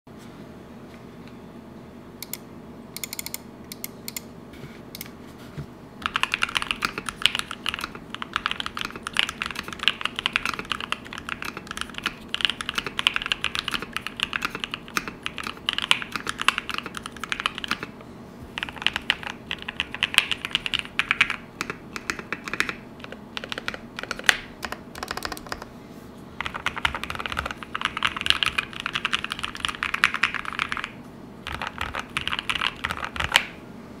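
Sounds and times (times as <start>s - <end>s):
mechanical keyboard typing: 6.0s - 17.9s, 18.6s - 25.7s, 26.4s - 33.5s.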